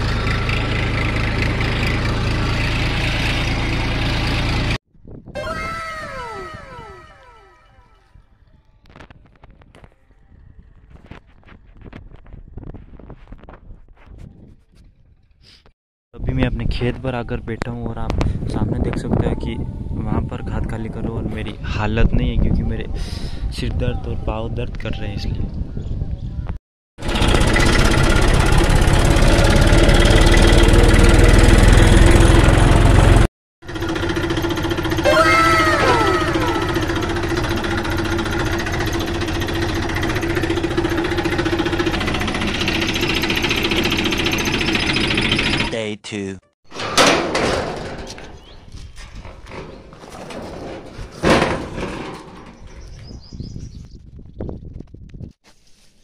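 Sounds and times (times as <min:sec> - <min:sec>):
tractor diesel engine running: 0:00.0 - 0:04.8, 0:27.0 - 0:45.7, 0:46.7 - 0:53.4
gate bolt clacking: 0:46.7 - 0:53.0
loud metal gate clank: 0:46.7 - 0:53.2
small metal rattles: 0:46.7 - 0:53.3.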